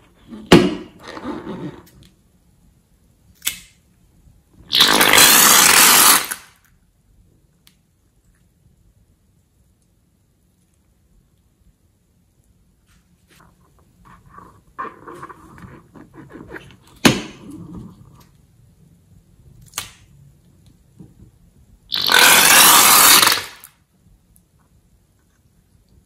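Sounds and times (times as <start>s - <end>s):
slime and air spurting hiss: 4.7s - 6.5s, 21.9s - 23.7s
slime squelching and crackling: 21.9s - 23.4s.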